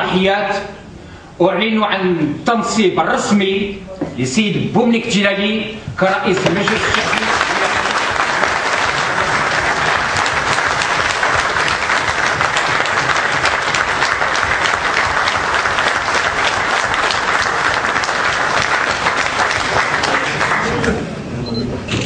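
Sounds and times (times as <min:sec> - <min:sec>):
crowd applauding: 0:06.3 - 0:21.0.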